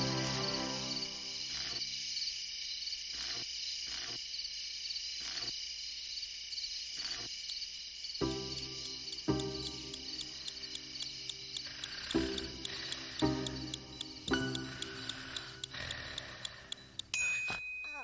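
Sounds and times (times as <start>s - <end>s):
sustained musical tones: 0.0s - 1.6s, 8.2s - 17.1s
crickets chirping: 0.0s - 18.0s.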